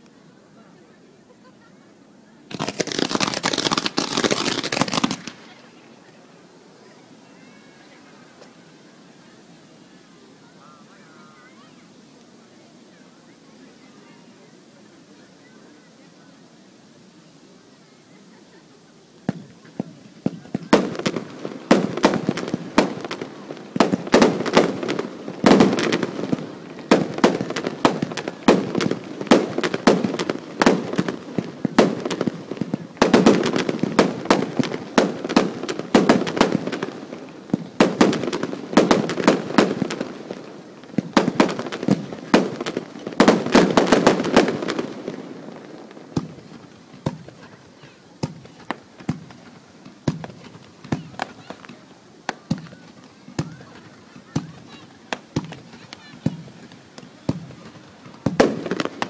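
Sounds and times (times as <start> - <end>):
fireworks cracking and banging: 2.5 - 6.0, 19.2 - 59.0.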